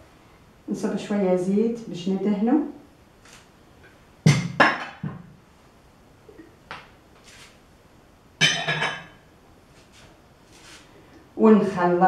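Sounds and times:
glass bowls clinking on a table: 8.4 - 9.2.

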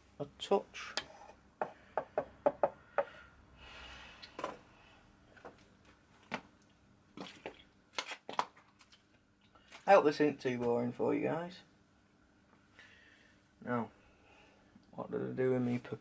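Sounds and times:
tools knocking on wooden workbench: 1.6 - 3.1.

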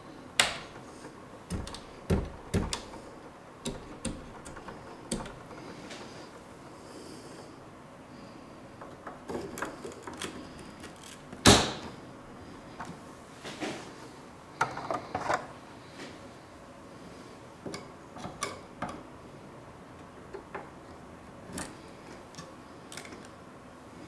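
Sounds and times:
memory modules clicking into slots: 0.4 - 0.8, 1.5 - 3.0, 3.6 - 5.5.

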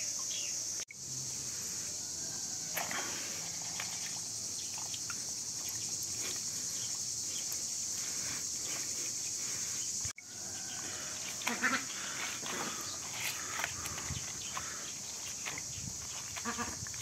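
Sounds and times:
insect chorus: 0.0 - 17.0
soft water splashes: 2.6 - 7.6
duck calls: 11.4 - 12.6, 16.4 - 16.8.

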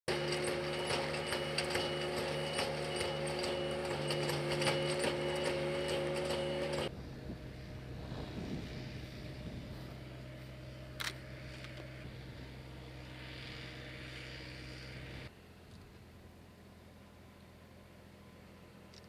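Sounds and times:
machine humming with rapid clicking: 0.1 - 6.9
open-air background: 0.1 - 19.0.

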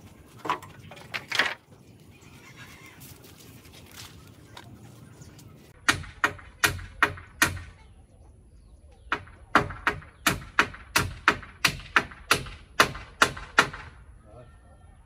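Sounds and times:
hammer striking nails into wood: 9.2 - 13.9.

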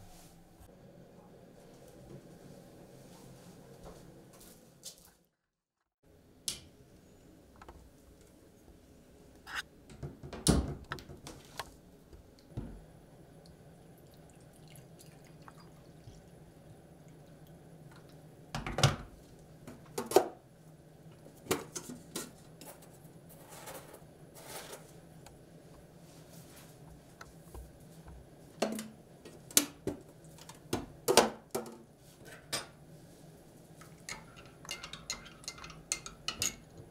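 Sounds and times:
water poured into mug: 14.0 - 16.3
mug and kettle clinking on worktop: 34.1 - 36.7.

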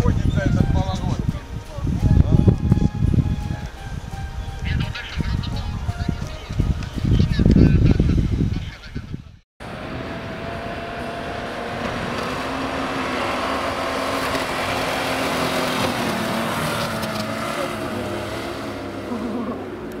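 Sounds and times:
engine running under load: 9.6 - 20.0
tyres churning through snow: 9.6 - 20.0.

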